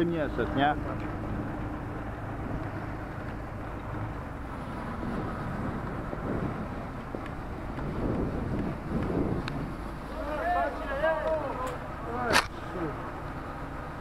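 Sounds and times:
fire engine engine running: 0.0 - 14.0.

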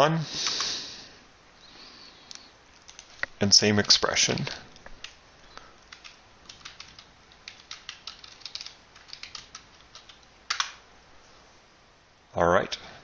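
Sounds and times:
keyboard typing: 2.8 - 10.8.

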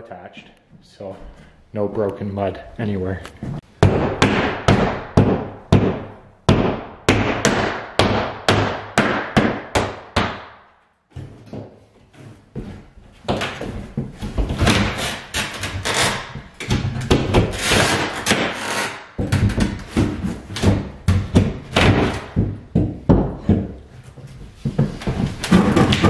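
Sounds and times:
tile cracking and scraping: 25.0 - 26.0.

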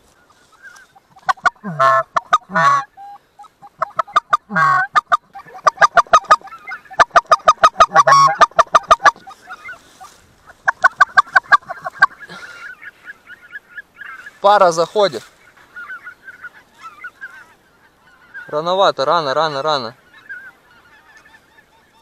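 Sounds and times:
geese honking: 0.0 - 22.0.

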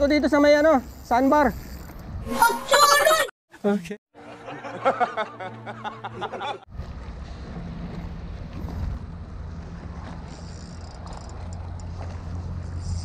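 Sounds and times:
wind rumbling on microphone: 6.7 - 13.0.

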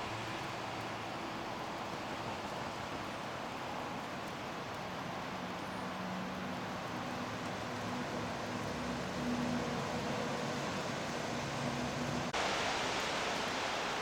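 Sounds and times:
road traffic hiss: 0.0 - 14.0.

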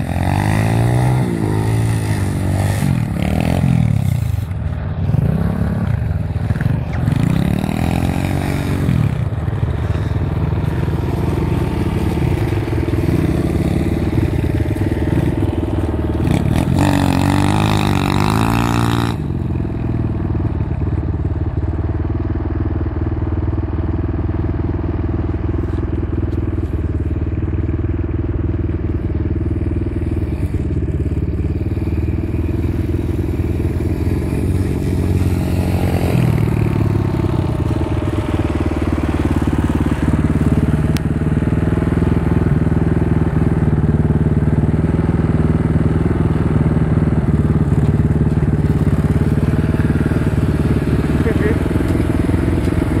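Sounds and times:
pit bike engine revving: 0.0 - 20.2, 29.2 - 53.0
small engines running: 24.3 - 53.0.

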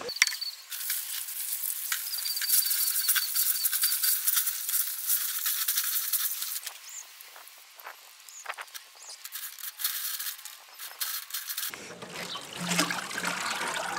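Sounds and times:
hose spraying water onto glass: 0.7 - 13.9.

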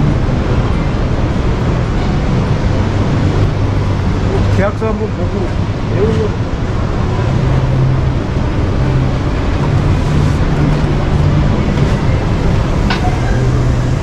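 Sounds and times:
exhibition hall din: 5.2 - 14.0
low hum: 5.6 - 14.0.

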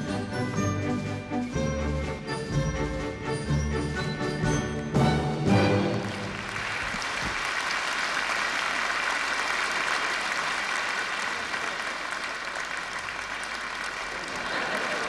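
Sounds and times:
audience applause: 5.8 - 15.0.

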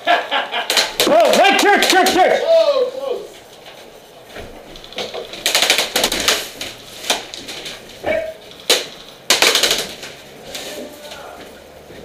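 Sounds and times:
airsoft guns firing bursts: 0.7 - 2.4, 5.4 - 6.6, 8.6 - 10.1
sharp gun cracks: 8.6 - 10.1.

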